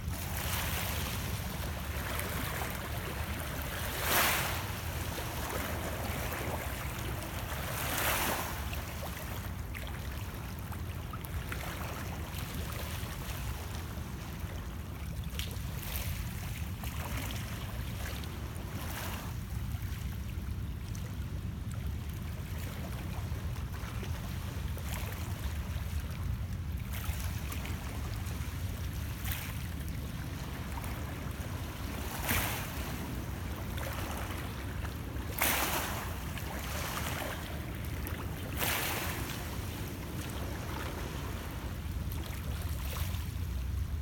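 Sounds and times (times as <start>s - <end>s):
waves lapping against rocks: 0.0s - 20.0s, 22.2s - 44.0s.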